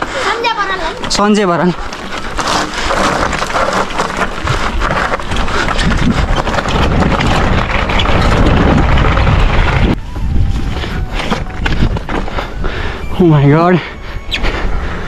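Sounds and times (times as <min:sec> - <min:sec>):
wind buffeting microphone: 0:04.2 - 0:15.0.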